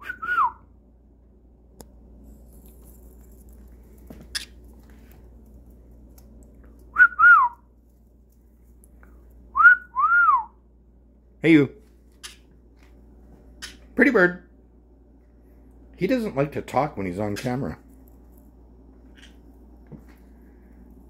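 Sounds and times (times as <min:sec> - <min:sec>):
two-note whistle: 0:00.0 - 0:00.6, 0:07.0 - 0:07.6, 0:09.6 - 0:10.5.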